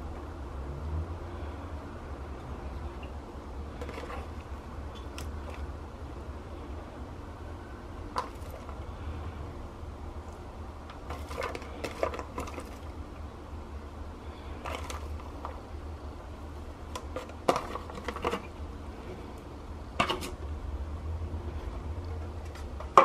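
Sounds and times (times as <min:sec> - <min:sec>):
steady low hum: 0:00.0 - 0:23.0
foil tray clattering and crinkling: 0:11.1 - 0:12.9, 0:17.0 - 0:18.5.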